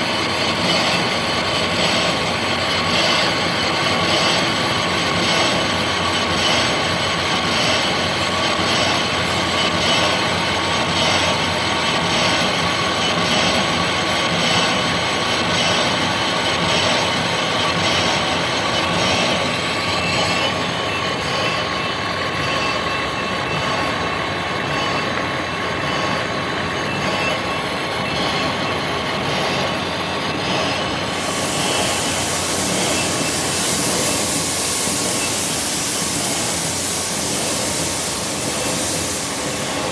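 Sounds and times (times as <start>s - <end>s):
metal lathe gear whine: 0.0s - 39.9s
steady hiss: 31.0s - 39.9s.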